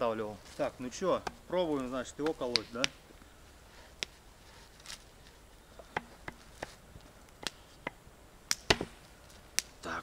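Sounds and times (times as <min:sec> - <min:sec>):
axe striking wood: 0:07.4 - 0:09.0.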